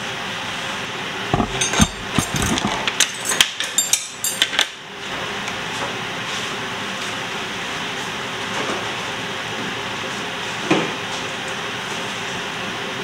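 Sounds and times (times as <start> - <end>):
pots and utensils clinking: 1.4 - 4.7.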